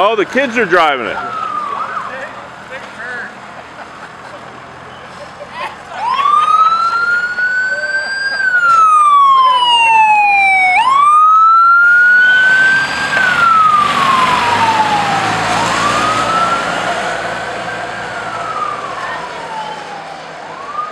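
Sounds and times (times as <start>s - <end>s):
toy fire truck wail siren: 1.0s - 2.3s, 5.9s - 20.9s.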